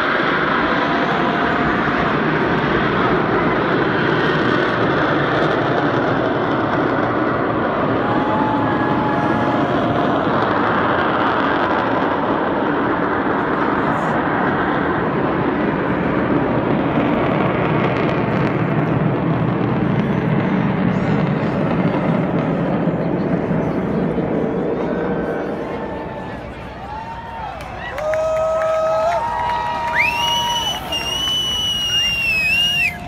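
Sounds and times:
jet roar passing overhead: 0.0s - 33.0s
faint whistle-like tone: 30.0s - 33.0s.

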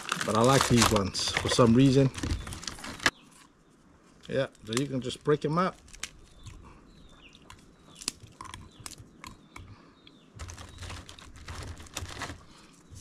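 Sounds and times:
crackers snapping: 0.0s - 3.1s, 4.2s - 6.7s, 7.4s - 9.6s.

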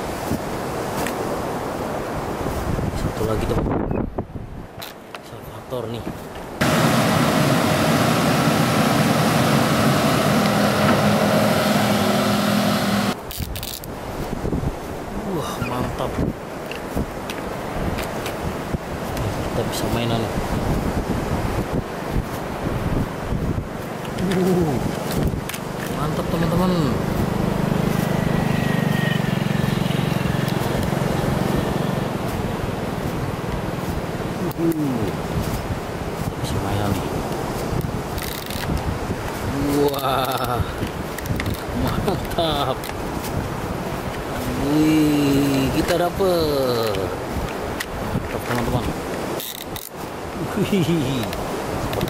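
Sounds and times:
excavator diesel engine running: 6.6s - 13.2s
low fluttering engine drone: 6.6s - 13.2s, 23.7s - 33.8s.

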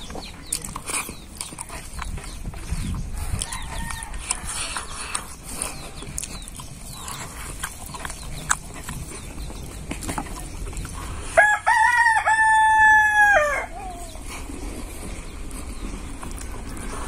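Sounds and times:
rooster crowing: 3.2s - 4.6s, 11.4s - 14.0s.

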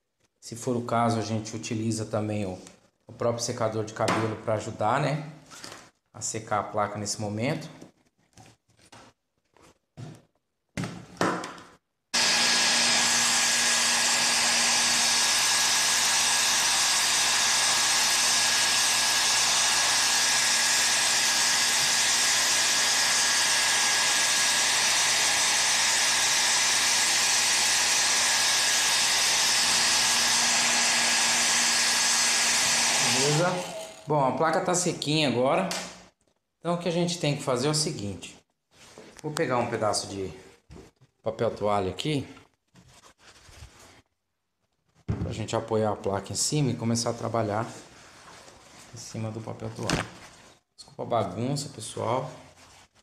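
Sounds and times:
hair dryer blowing: 12.2s - 34.0s.

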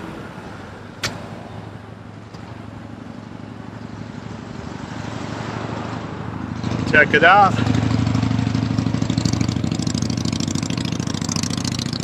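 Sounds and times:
vehicle engine humming: 0.0s - 12.0s
sharp click: 1.0s - 1.3s.

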